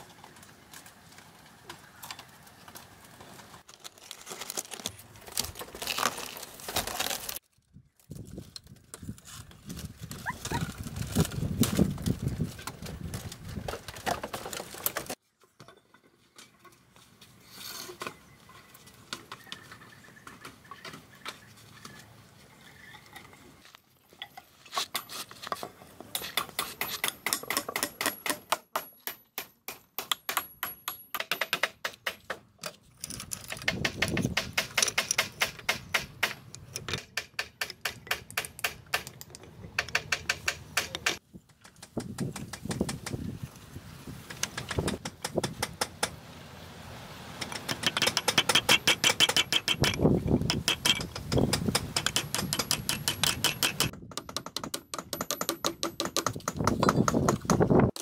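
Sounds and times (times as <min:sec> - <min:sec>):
hand tools tapping and knocking: 0:24.2 - 0:43.2, 0:47.4 - 0:57.7.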